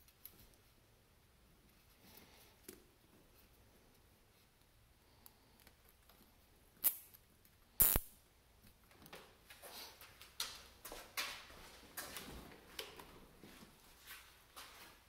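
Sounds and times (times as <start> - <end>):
zip tie ratcheting: 6.8 - 7.1, 7.8 - 8.1.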